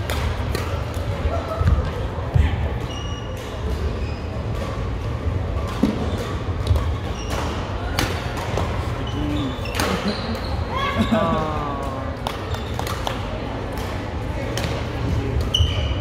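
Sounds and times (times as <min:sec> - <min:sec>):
shoe squeaks on court: 0:02.8 - 0:04.5, 0:07.0 - 0:07.6, 0:15.4 - 0:16.0.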